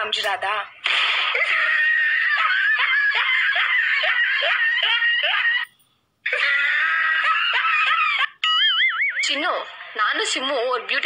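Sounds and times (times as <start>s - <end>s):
high-pitched rhythmic laughter: 1.5s - 9.9s.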